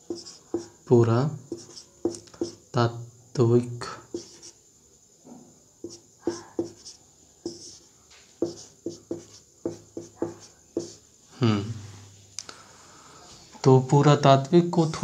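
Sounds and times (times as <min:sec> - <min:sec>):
marker squeaking on whiteboard: 0:00.0 - 0:00.8, 0:01.5 - 0:02.6, 0:04.1 - 0:04.6, 0:05.8 - 0:07.8, 0:08.4 - 0:11.0.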